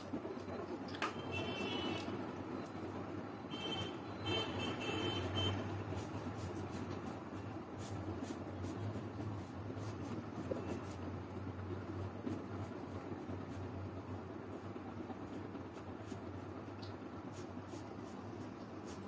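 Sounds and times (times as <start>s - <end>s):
marker rubbing on paper: 5.9s - 11.1s, 17.3s - 19.0s.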